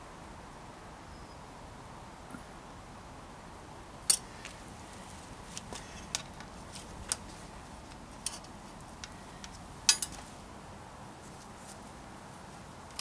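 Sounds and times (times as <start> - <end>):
small metal clicks and taps: 7.9 - 10.2.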